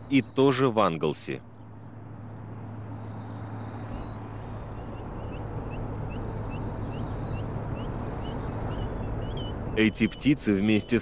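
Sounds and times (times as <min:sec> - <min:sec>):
short rising bird peeps: 0:02.0 - 0:11.0
thin high bird whistles: 0:02.9 - 0:04.2, 0:06.0 - 0:11.0.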